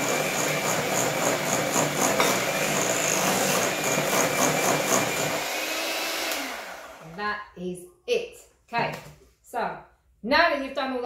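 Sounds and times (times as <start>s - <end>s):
electric hand mixer whining: 0.0s - 7.2s.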